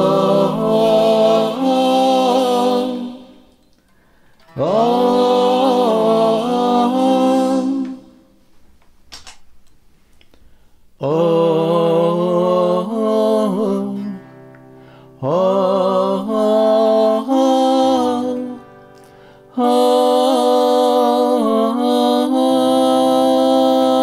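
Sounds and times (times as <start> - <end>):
electric guitar chords: 0.0 - 3.4
man singing with harmony effect: 0.0 - 3.6, 4.4 - 8.4, 11.0 - 18.8, 19.4 - 24.0.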